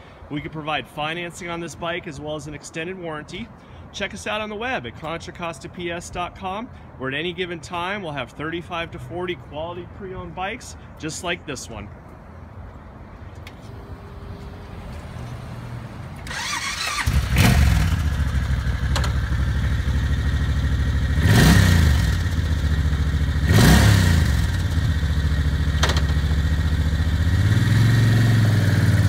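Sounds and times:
motorcycle engine starting and idling: 13.4s - 29.0s.

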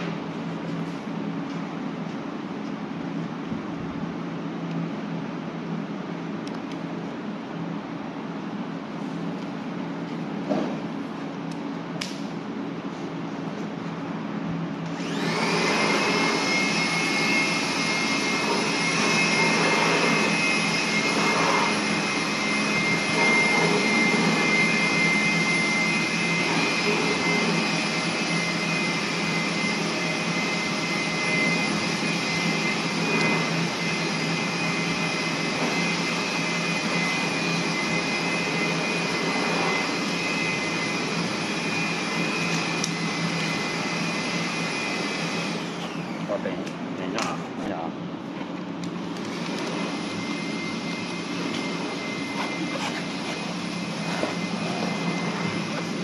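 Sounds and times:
high steady whine: 0.0s - 56.0s
motor-driven machine running: 15.0s - 46.4s.

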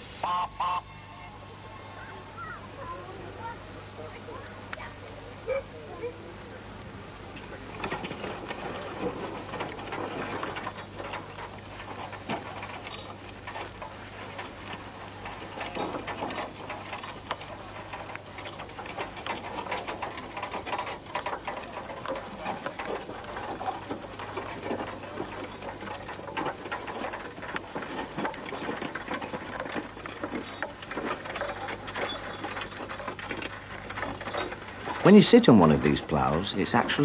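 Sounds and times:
faint steady hum: 0.0s - 37.0s
mechanical rattling and clicking: 7.3s - 37.0s.

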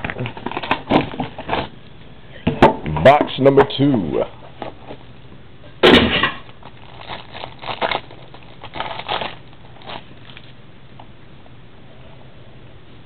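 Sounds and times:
plastic wrapping crinkling and tearing: 0.0s - 1.7s, 6.4s - 10.6s.

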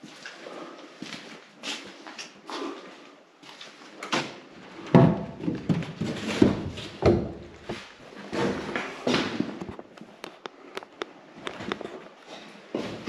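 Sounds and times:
knocks and thuds in echoing room: 4.2s - 9.6s.

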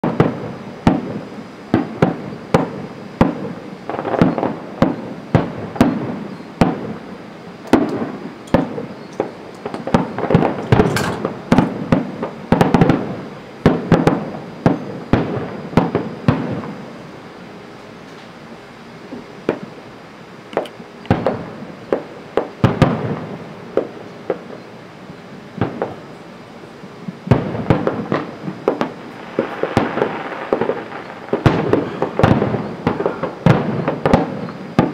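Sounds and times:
fireworks bangs: 0.0s - 17.0s, 19.1s - 19.9s, 20.5s - 26.2s, 26.8s - 34.9s.

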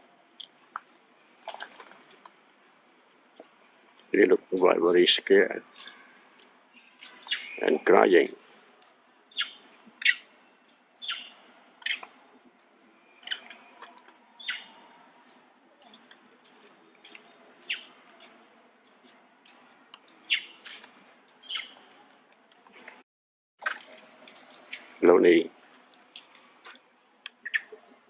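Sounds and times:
monkeys giving alarm calls: 9.3s - 10.3s, 11.0s - 12.1s, 14.4s - 14.9s, 17.4s - 18.0s, 20.2s - 20.7s, 21.4s - 21.9s.

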